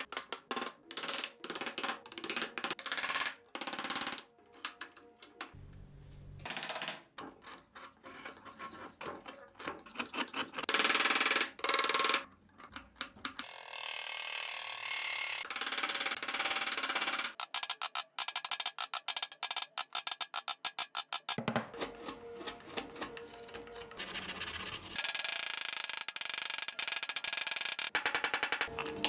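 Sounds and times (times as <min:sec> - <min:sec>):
chisel rasping cutting strokes: 0:07.4 - 0:10.7, 0:21.8 - 0:25.0.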